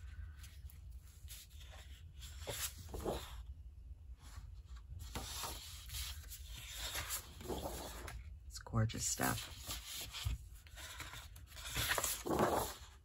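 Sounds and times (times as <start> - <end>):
paper sheets rustling: 0.4 - 3.4, 4.6 - 8.2, 9.2 - 13.0.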